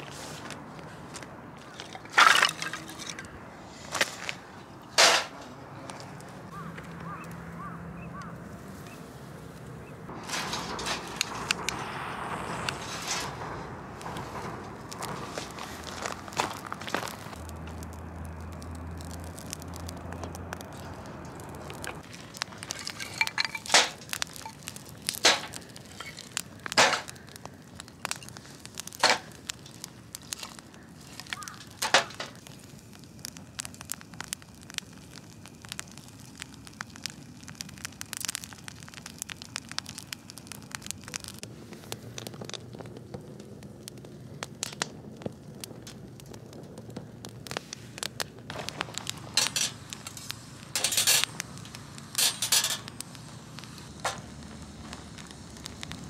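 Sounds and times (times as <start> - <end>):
low hiss of fire: 0.0 - 7.1, 8.2 - 56.0
wood fire crackling and popping: 0.0 - 9.0, 10.1 - 56.0.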